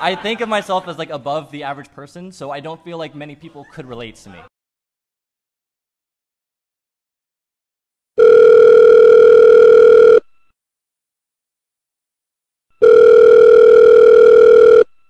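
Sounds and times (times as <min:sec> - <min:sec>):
telephone ringback tone: 0:08.2 - 0:10.3, 0:12.8 - 0:15.0.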